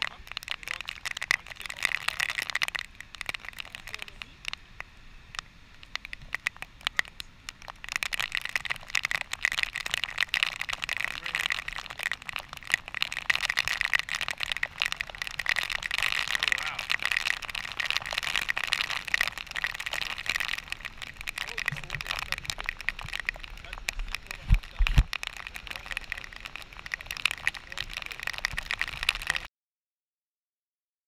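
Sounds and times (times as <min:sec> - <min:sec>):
droplets ticking on plastic: 0:00.0 - 0:29.5
waterfall spray hissing: 0:03.0 - 0:07.8.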